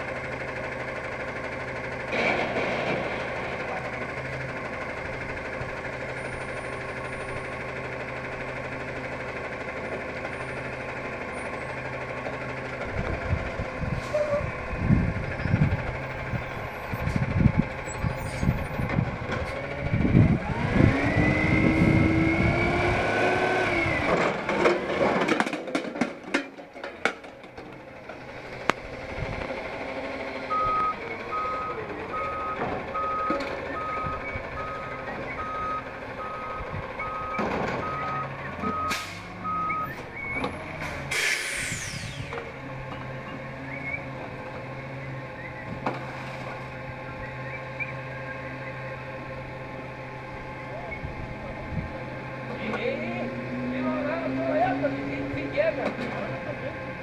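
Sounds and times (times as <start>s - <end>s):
garbage truck engine revving: 0.0s - 26.3s, 27.2s - 57.0s
hydraulics whining: 0.0s - 57.0s
trash crashing into hopper: 2.1s - 3.8s.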